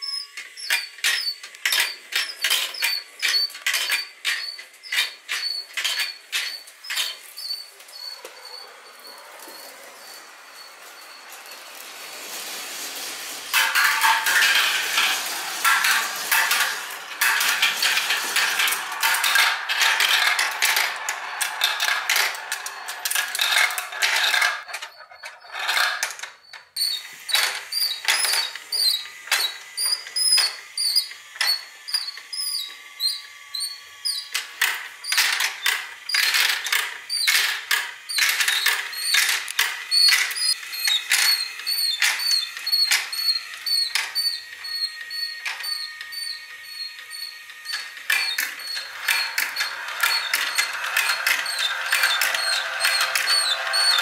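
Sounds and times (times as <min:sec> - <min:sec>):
high-pitched squeaks: 0:00.0 - 0:54.0
marbles rolling on plastic track: 0:00.1 - 0:07.9, 0:08.5 - 0:54.0
chain lift clicking: 0:13.5 - 0:54.0.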